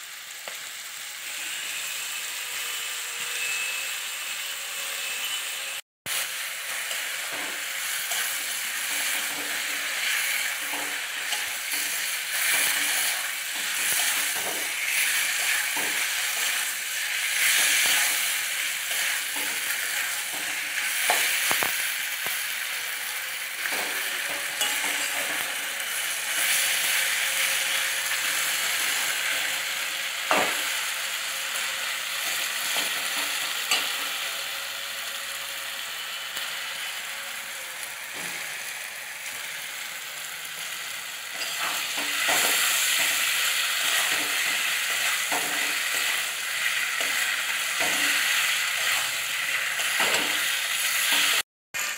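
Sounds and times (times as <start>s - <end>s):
chicken and onions sizzling: 0.0s - 51.9s
metal spatula scraping a pan: 6.1s - 22.0s, 23.6s - 34.2s, 41.3s - 51.4s.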